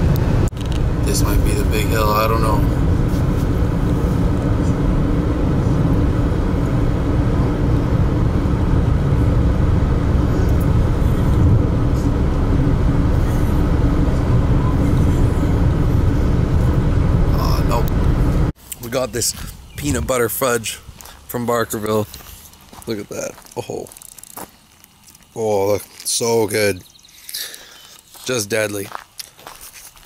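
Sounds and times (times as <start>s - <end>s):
car interior road rumble: 0.0s - 23.7s.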